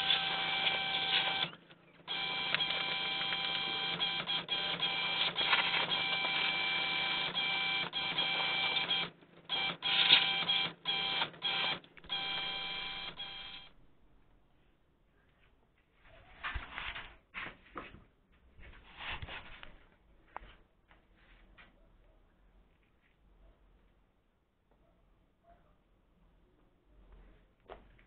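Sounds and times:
electric power tool whining: 0.0 - 1.5.

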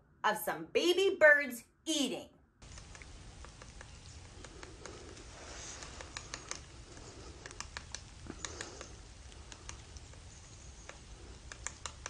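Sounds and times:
sharp clicks and ticks: 2.6 - 12.0
soft high-pitched hissy bursts: 2.6 - 12.0.

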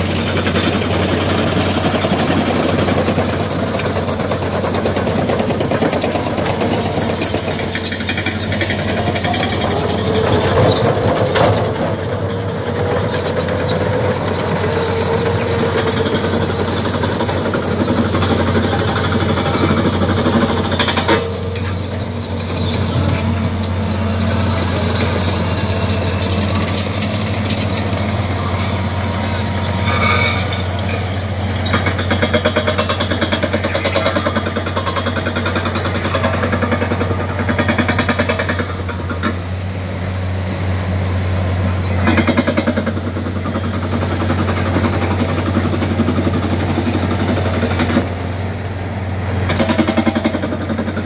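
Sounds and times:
engine running: 0.0 - 51.0.

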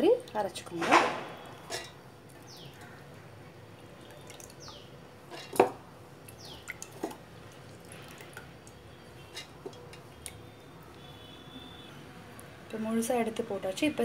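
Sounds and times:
water dripping and splashing: 0.0 - 11.1.

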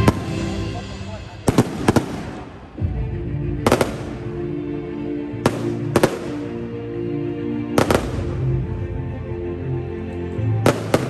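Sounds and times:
fireworks bangs: 0.0 - 2.8, 3.6 - 4.4, 5.4 - 6.7, 7.8 - 8.5, 10.6 - 11.0
music with long held notes: 0.0 - 11.0.

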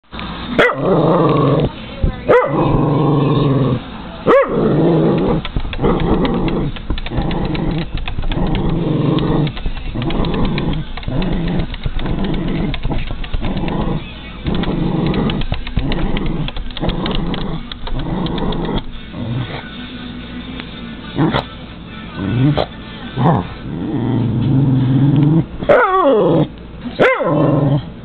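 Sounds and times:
dog yapping: 0.6 - 0.8, 2.3 - 2.8, 4.3 - 4.7, 25.6 - 26.3, 27.0 - 27.4
dog growling barks: 0.6 - 19.6, 22.2 - 28.0.

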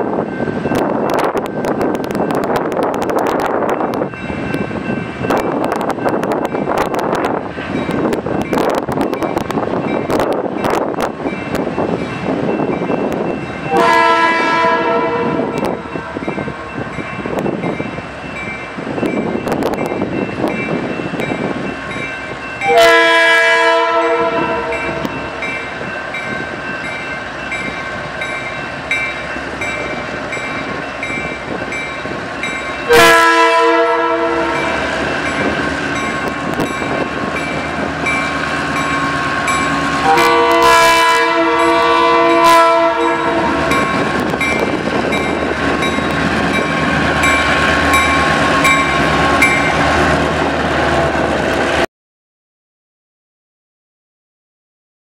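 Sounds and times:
crossing bell ringing: 0.0 - 50.4
locomotive air horn blasts: 13.6 - 15.8, 22.6 - 25.1, 32.9 - 34.8, 39.9 - 43.9
locomotive engine rumble: 24.0 - 51.8.

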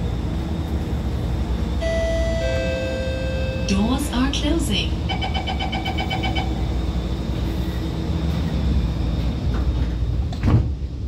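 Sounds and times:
train low hum: 0.0 - 11.0
door-closing warning beeps: 5.1 - 6.6
train doors clunk: 8.2 - 11.0.

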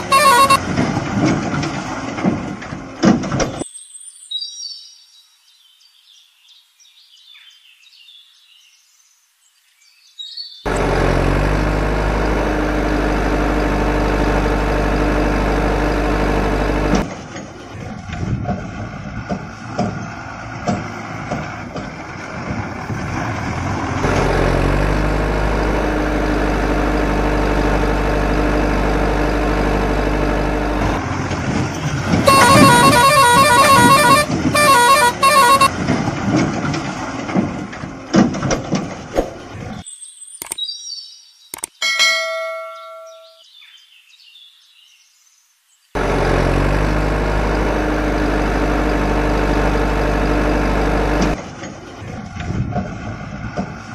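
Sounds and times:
beeping horn tune: 0.0 - 0.7, 32.2 - 35.8
electronic truck engine hum: 0.0 - 0.8, 10.7 - 17.9, 19.5 - 35.9, 46.0 - 52.1
clicks: 41.5 - 41.8.

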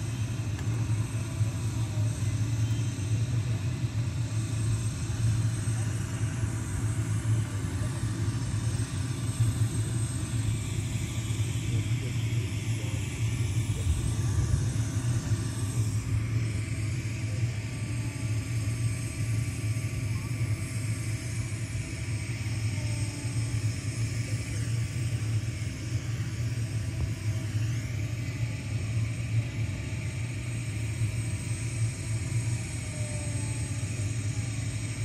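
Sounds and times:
faint talk: 11.0 - 15.9.

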